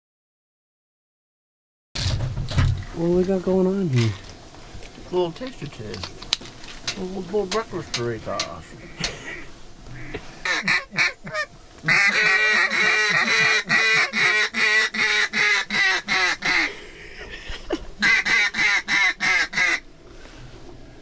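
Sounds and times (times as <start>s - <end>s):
duck call quacks: 10.0s - 16.7s, 18.0s - 19.8s.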